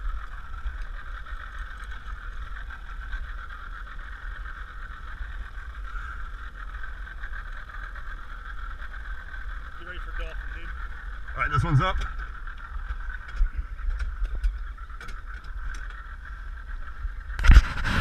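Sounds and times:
outboard motor running: 0:00.0 - 0:18.0
wind on microphone: 0:08.8 - 0:18.0.

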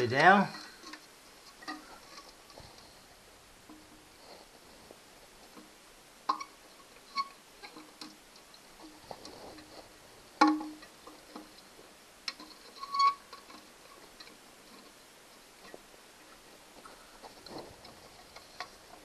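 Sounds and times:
plastic parts clicking and knocking: 0:10.4 - 0:11.6.

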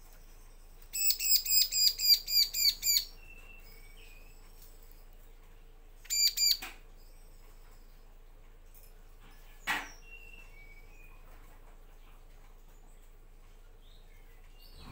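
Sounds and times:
bird chirping: 0:00.4 - 0:05.0, 0:06.0 - 0:08.1, 0:09.3 - 0:12.2, 0:12.8 - 0:14.9.

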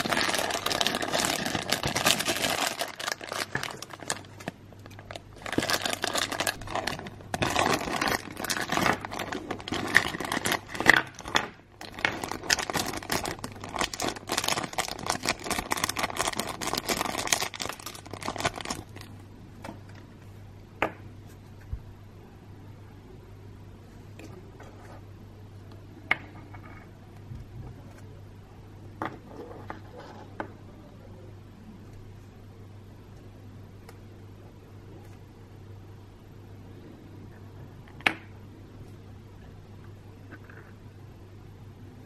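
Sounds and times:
plastic bags crinkling: 0:00.0 - 0:19.1.

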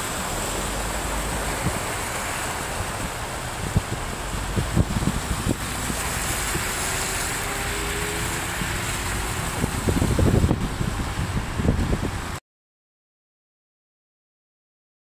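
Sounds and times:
hiss of water: 0:00.0 - 0:11.3
cars driving through water: 0:00.0 - 0:12.4.

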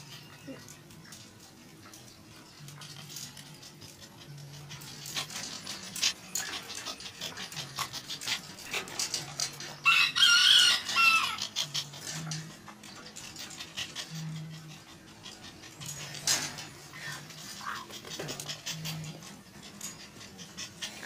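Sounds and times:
dog panting: 0:00.0 - 0:10.0, 0:11.2 - 0:21.0
rooster crowing: 0:09.8 - 0:11.4.

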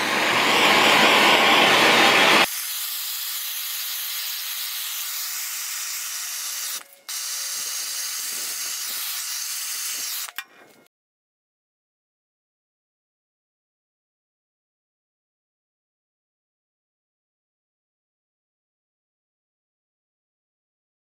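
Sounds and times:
gas torch flame hissing: 0:00.0 - 0:10.4.

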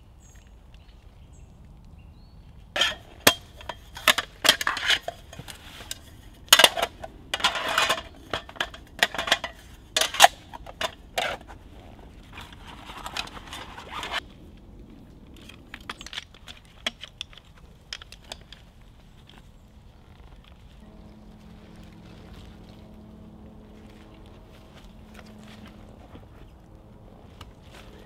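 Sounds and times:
metal table clinks and clatters: 0:02.8 - 0:11.4
metal scraping: 0:02.8 - 0:14.2.

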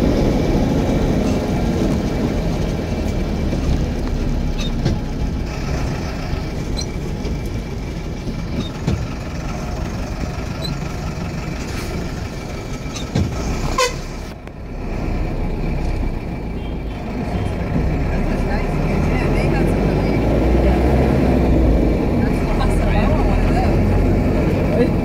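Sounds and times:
engine and road rumble: 0:00.0 - 0:25.0
car horn toot: 0:13.7 - 0:14.2, 0:16.6 - 0:17.5.

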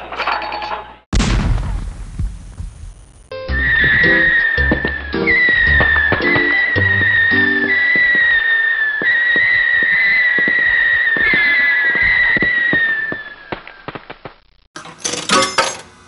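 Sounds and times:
long whistled sliding notes: 0:03.4 - 0:10.2.

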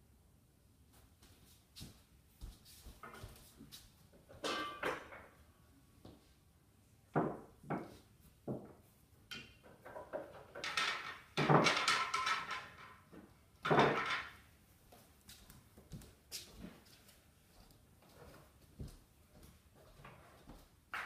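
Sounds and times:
pool balls clacking: 0:09.3 - 0:14.4.

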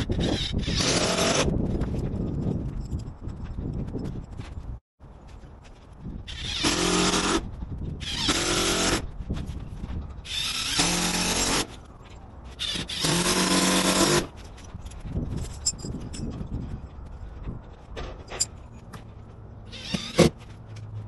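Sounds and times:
handheld power drill running: 0:10.3 - 0:11.6, 0:12.6 - 0:14.3, 0:19.7 - 0:20.3.

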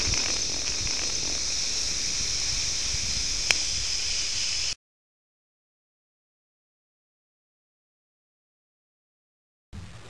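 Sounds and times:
tv static hiss: 0:00.0 - 0:04.8, 0:09.8 - 0:10.0.

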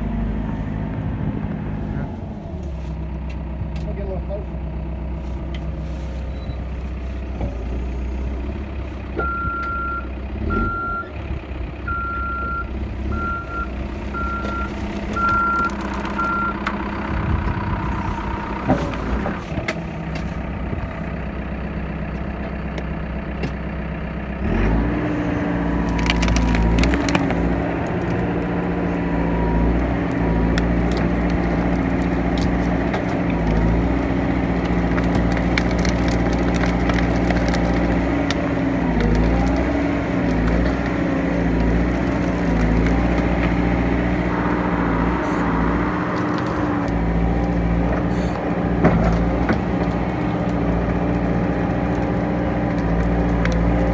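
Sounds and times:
diesel engine running: 0:00.0 - 0:53.9
reversing alarm beeping: 0:11.9 - 0:16.6
sticks cracking and snapping: 0:14.5 - 0:16.8, 0:25.7 - 0:29.0, 0:29.7 - 0:44.3, 0:45.8 - 0:53.9.

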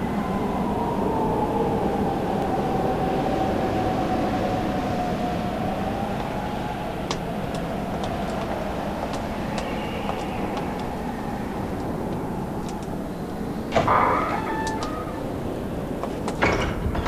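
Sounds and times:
faint whistling tone sinking in pitch: 0:09.4 - 0:11.8.

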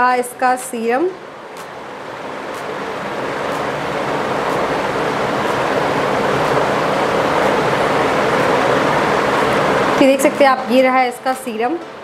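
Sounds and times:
steady rushing noise: 0:01.1 - 0:12.0
faint ticking: 0:01.4 - 0:10.7.

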